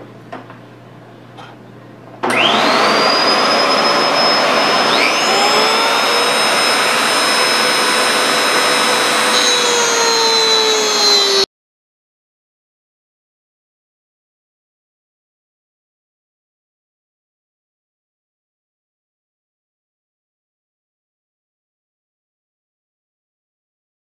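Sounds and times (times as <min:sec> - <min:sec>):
rotary tool whining: 0:02.2 - 0:11.5.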